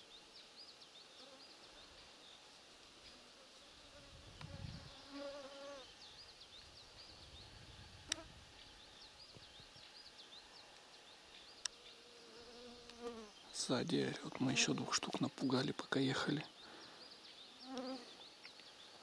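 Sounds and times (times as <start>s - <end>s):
flying insect buzzing: 2.8s - 9.9s, 11.6s - 13.4s, 17.5s - 18.2s.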